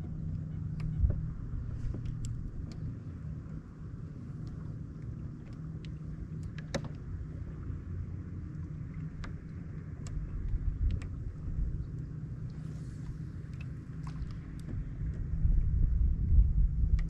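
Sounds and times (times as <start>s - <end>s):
distant motorboat engine hum: 0.0s - 17.0s
light clicks and ticks: 0.2s - 1.2s, 1.8s - 2.9s, 4.3s - 7.1s, 8.4s - 11.2s, 11.8s - 15.3s.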